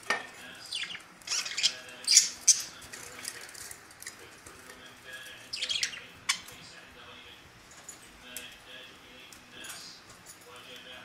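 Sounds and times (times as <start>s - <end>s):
budgerigars chirping: 0.6s - 2.8s, 5.5s - 6.6s.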